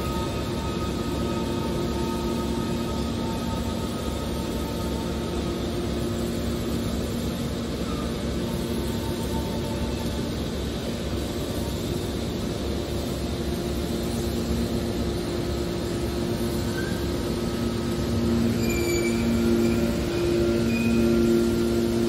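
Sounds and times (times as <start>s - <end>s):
hydraulic baler rumbling hum: 12.2s - 22.0s
high squeaks: 18.2s - 22.0s.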